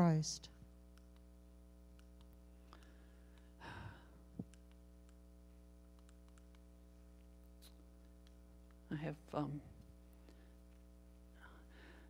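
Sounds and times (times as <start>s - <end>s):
steady low hum: 0.0s - 12.0s
soft sighing breath: 2.8s - 4.2s.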